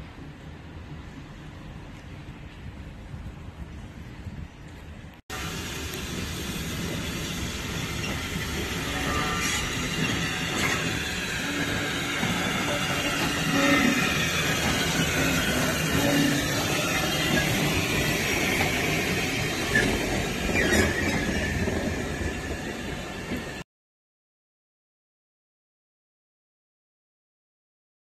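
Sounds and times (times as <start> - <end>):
train wheels rumbling on rail: 0.0 - 23.6
wheel squeal: 6.6 - 23.4.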